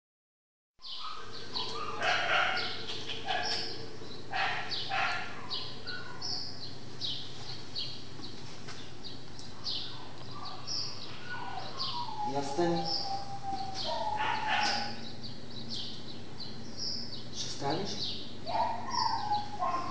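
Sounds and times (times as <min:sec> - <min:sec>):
dogs barking and yipping: 0:00.8 - 0:06.6, 0:09.5 - 0:15.2, 0:18.4 - 0:19.9.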